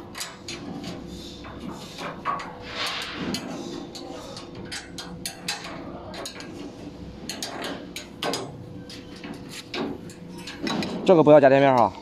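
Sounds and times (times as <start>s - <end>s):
metal tube clicking and knocking: 3.3s - 6.6s, 7.3s - 11.0s.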